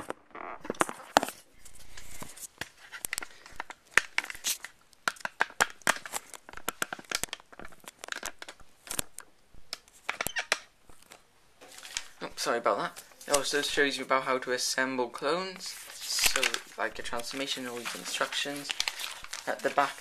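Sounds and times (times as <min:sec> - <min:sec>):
paper rustling: 0:00.7 - 0:09.2, 0:10.9 - 0:14.1, 0:15.2 - 0:20.0.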